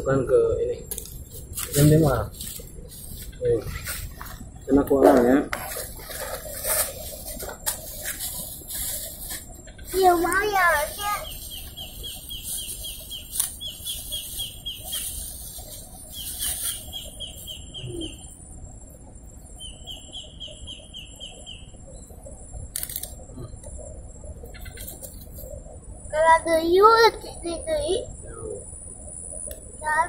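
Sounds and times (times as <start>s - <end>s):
small bird trilling chirps: 9.2s - 18.4s, 19.4s - 22.2s, 24.4s - 25.5s.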